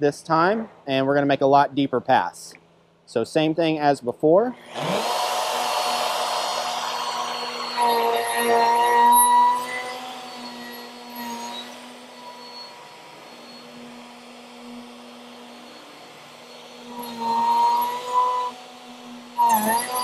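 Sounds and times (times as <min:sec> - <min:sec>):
electric router running: 0:04.6 - 0:20.0.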